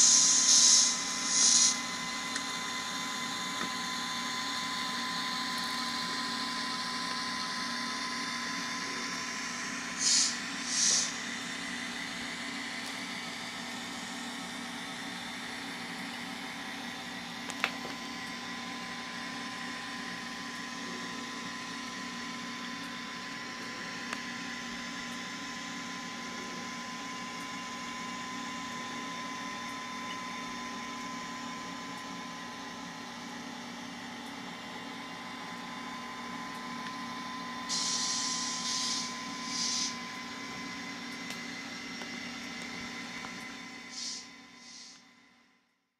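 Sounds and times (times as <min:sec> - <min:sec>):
air hiss bursts: 0:00.0 - 0:01.8, 0:09.9 - 0:11.3, 0:37.7 - 0:40.0, 0:43.9 - 0:45.0
model locomotive engine sound: 0:00.0 - 0:45.2
thin high whine: 0:00.0 - 0:45.4.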